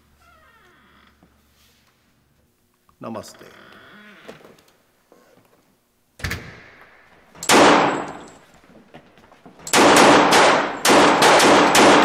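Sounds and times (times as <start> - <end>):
door shutting: 6.2 - 6.7
loud gunshot: 7.4 - 8.2, 9.7 - 12.0
rapid volley of gunshots: 7.5 - 8.1, 9.7 - 12.0.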